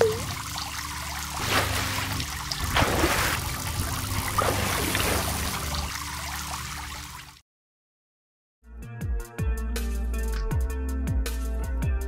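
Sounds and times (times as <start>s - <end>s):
water trickling and splashing: 0.0s - 7.4s.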